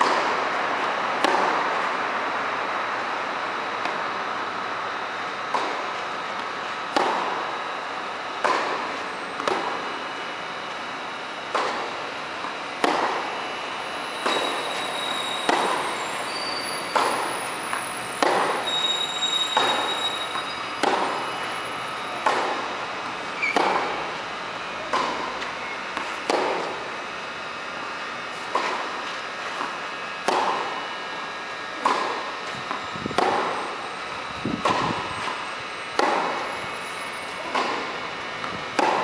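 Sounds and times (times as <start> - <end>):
racket striking tennis ball: 1.2 - 1.9, 5.5 - 7.4, 8.3 - 9.9, 11.5 - 15.8, 16.9 - 17.3, 18.2 - 18.8, 19.6 - 24.2, 24.8 - 27.0, 28.3 - 30.8, 31.7 - 33.8, 34.6 - 36.4, 37.3 - 39.0
tennis ball bouncing: 5.5 - 7.4, 8.4 - 9.9, 11.5 - 13.3, 15.5 - 15.8, 16.9 - 17.3, 18.2 - 18.6, 19.6 - 21.3, 22.2 - 22.8, 23.4 - 24.1, 24.8 - 26.9, 28.4 - 30.8, 31.8 - 33.6, 34.6 - 35.4, 36.0 - 36.4, 37.4 - 39.0.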